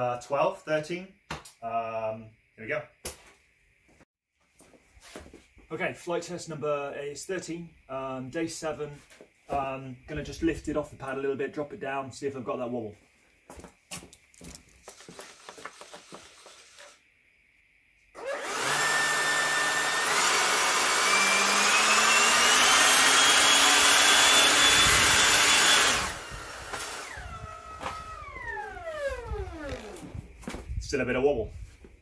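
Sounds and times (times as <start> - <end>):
electric ducted fan whine: 18.2 - 30.5.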